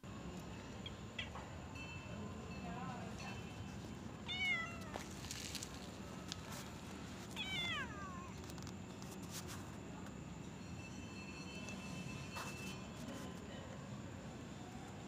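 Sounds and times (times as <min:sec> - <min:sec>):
cat meowing: 0:04.2 - 0:05.1, 0:07.3 - 0:08.4.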